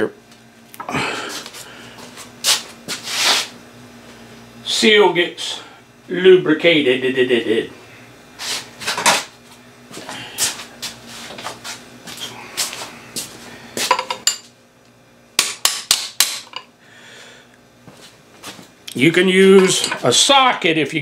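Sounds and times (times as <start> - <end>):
metal tools clinking: 19.6 - 20.1.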